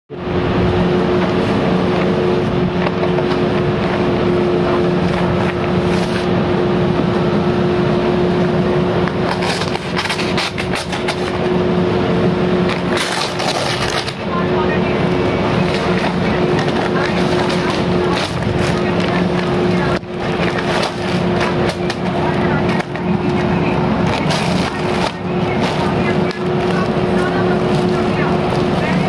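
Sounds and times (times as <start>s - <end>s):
steady machine hum: 0.1s - 29.0s
plastic packaging crinkling: 22.8s - 29.0s.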